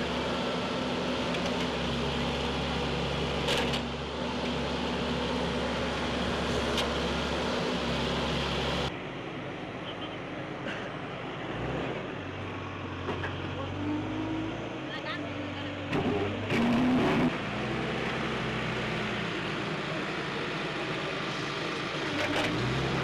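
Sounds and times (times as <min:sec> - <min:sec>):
diesel engine idling: 0:18.4 - 0:23.0.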